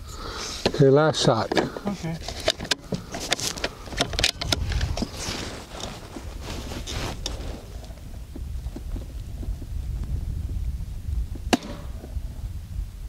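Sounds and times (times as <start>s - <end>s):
light clicks and rustles: 1.4s - 10.1s
wind rumbling on microphone: 1.7s - 13.0s.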